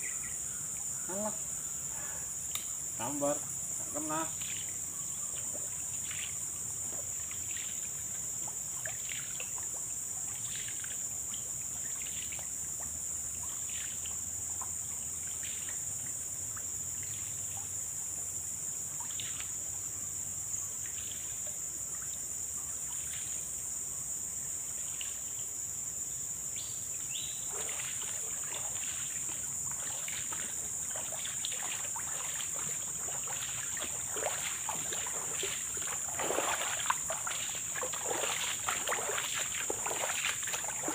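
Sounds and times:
footsteps sloshing through water: 0:04.2 - 0:14.7, 0:27.1 - 0:40.9
high-pitched insect drone: 0:26.4 - 0:40.9.

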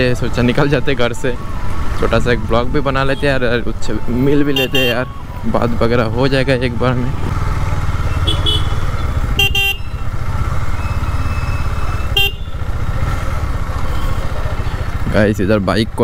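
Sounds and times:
motorcycle engine rumbling: 0:00.0 - 0:16.0
horn beeps: 0:08.0 - 0:12.7.

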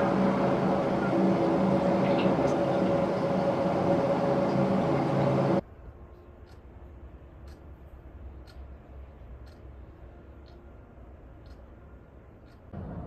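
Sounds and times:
wall clock tick: 0:08.4 - 0:08.6, 0:09.4 - 0:09.6, 0:11.4 - 0:11.7.

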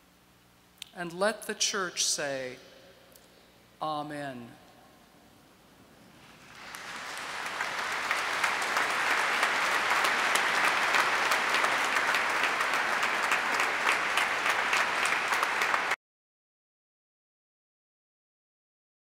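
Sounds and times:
crowd applauding: 0:06.4 - 0:16.0.

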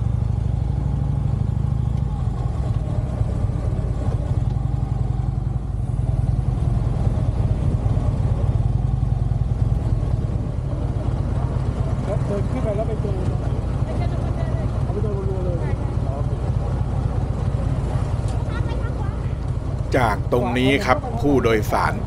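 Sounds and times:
motorcycle engine running at low revs: 0:00.0 - 0:21.2.

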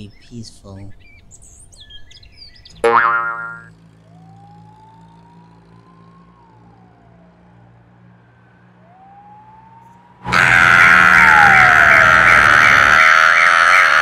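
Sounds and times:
car alarm siren warbling: 0:02.8 - 0:07.6, 0:08.8 - 0:14.0.

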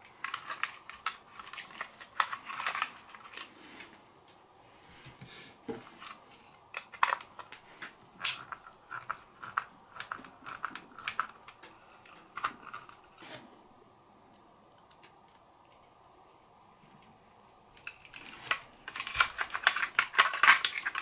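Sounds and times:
small plastic parts clicking: 0:00.0 - 0:03.5, 0:06.0 - 0:13.2, 0:17.7 - 0:21.0.

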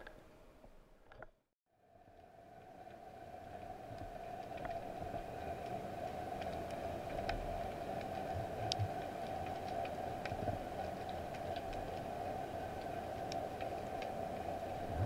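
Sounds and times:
underwater hum: 0:01.8 - 0:15.0
sharp clicks and crackles: 0:03.9 - 0:14.8.

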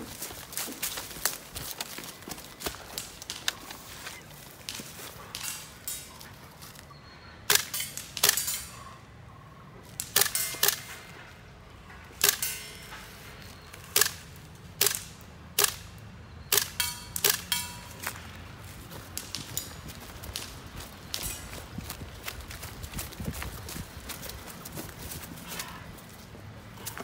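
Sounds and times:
airsoft rifle shots: 0:10.0 - 0:11.1, 0:14.8 - 0:15.9, 0:16.5 - 0:17.8.

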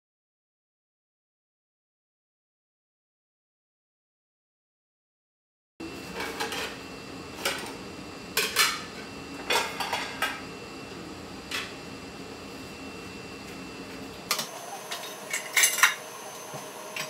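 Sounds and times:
plates and cutlery clinking: 0:08.4 - 0:10.4, 0:14.3 - 0:17.0.

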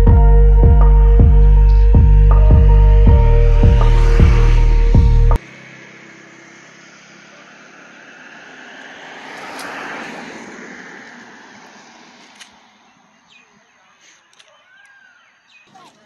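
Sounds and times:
vehicle passing by: 0:01.8 - 0:13.6.

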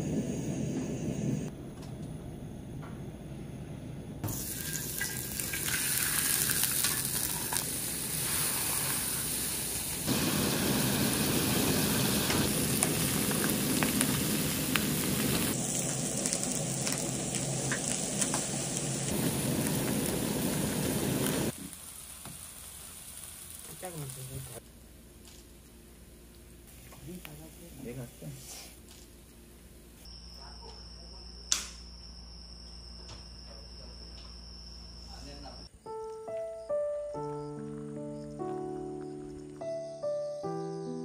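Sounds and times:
fish and shrimp sizzling on griddle: 0:04.2 - 0:24.6.

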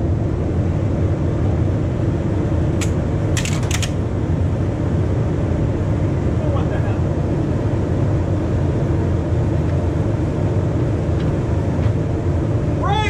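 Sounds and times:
steady low rumble: 0:00.0 - 0:13.0
sharp metallic contactor clicks: 0:02.8 - 0:04.0.

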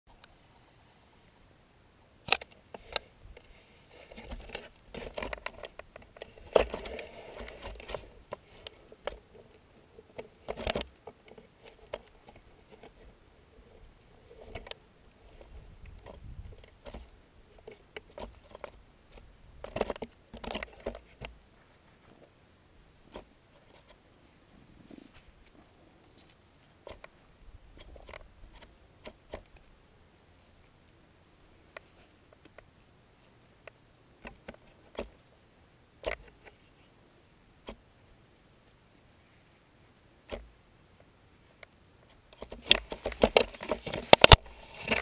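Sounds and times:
knocks and scraping on camera housing: 0:02.3 - 0:09.5, 0:10.1 - 0:13.1, 0:14.3 - 0:21.4, 0:42.0 - 0:45.0
faint low rumble: 0:21.0 - 0:43.3.

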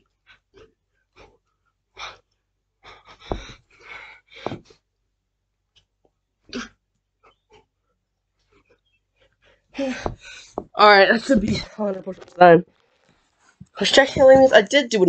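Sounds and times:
person breathing heavily: 0:02.0 - 0:04.8, 0:09.4 - 0:10.7.

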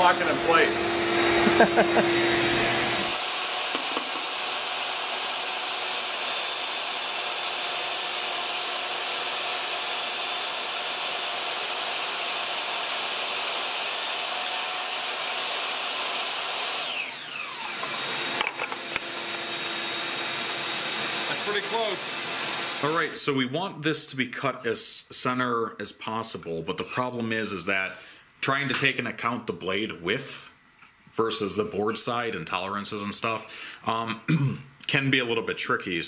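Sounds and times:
saw blade winding down: 0:00.0 - 0:23.2
table saw whining through cut: 0:00.0 - 0:23.3.

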